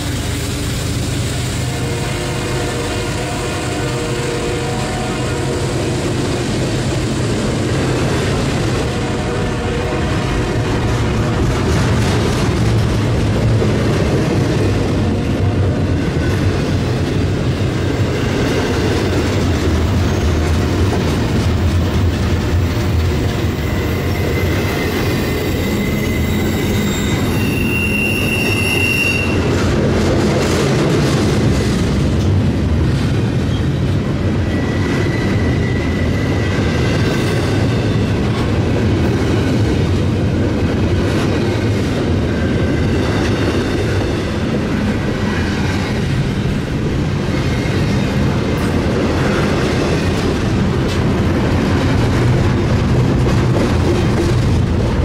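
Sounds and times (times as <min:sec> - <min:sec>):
freight train rolling on rails: 0:00.0 - 0:55.0
high wheel squeal: 0:23.4 - 0:29.5, 0:34.4 - 0:38.0.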